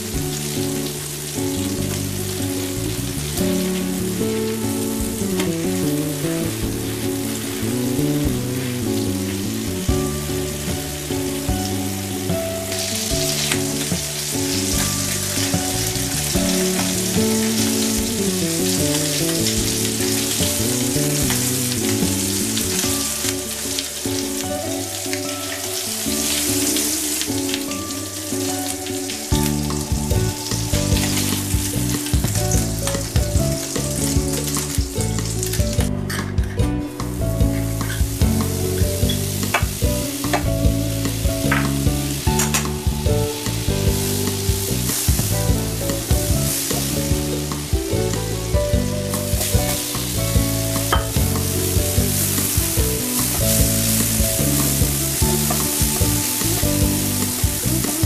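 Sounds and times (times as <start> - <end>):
background music: 0.0 - 58.0
meat patties sizzling in oil: 37.0 - 58.0.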